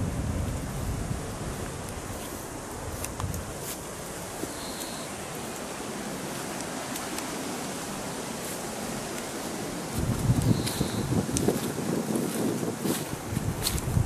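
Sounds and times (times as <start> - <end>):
distant surf: 0.0 - 14.0
wind: 0.0 - 14.0
faint ticks: 2.7 - 5.7, 10.2 - 11.5.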